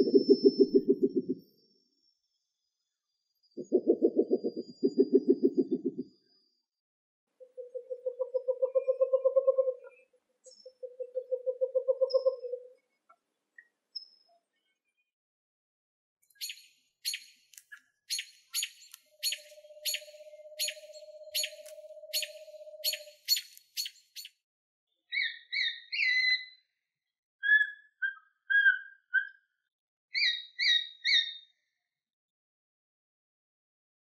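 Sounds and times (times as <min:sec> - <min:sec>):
owl trilling: 0:16.4 - 0:17.3, 0:18.1 - 0:24.3, 0:25.1 - 0:26.6, 0:27.4 - 0:29.4, 0:30.2 - 0:31.5
owl whistled notes: 0:18.1 - 0:24.3, 0:25.1 - 0:26.6, 0:27.4 - 0:29.4, 0:30.2 - 0:31.4.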